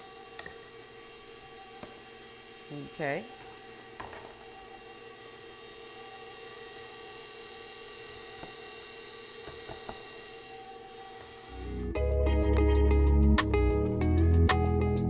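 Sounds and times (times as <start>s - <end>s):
stand mixer motor whine: 0.0s - 12.0s.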